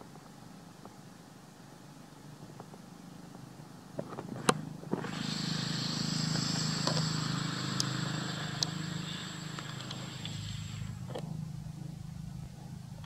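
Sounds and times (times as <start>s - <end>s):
steady high hiss: 0.0s - 13.0s
vehicle engine hum: 4.1s - 13.0s
sharp clicks: 4.5s - 11.3s.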